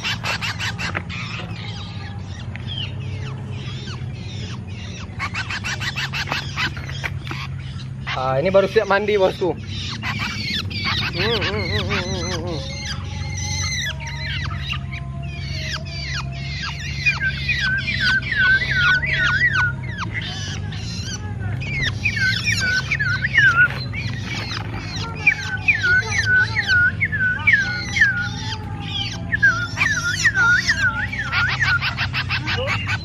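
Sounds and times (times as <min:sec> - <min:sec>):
songbirds calling: 0:00.0 - 0:33.0.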